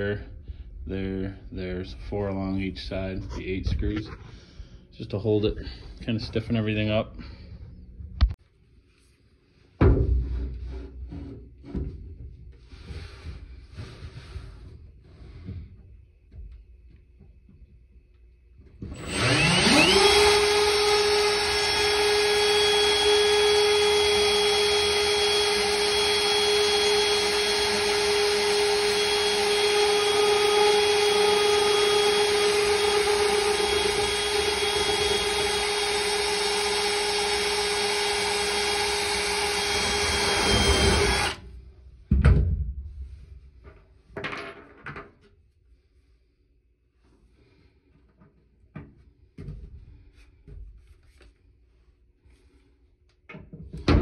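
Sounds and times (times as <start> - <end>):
cordless drill drilling: 18.8 - 41.5.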